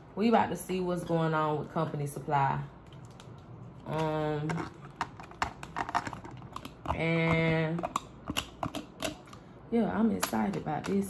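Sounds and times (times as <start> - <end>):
plastic containers clicking: 3.0 - 9.4.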